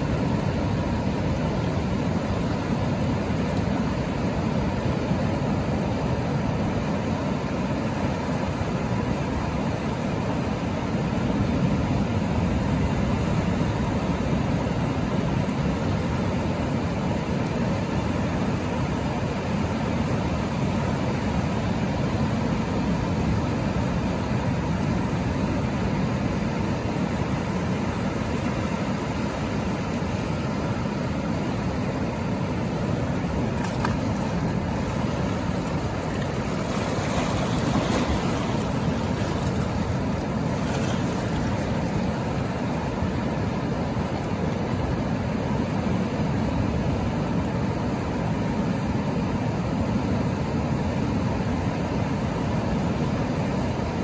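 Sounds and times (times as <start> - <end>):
waves breaking: 0.0 - 54.0
water washing across sand: 17.6 - 46.5.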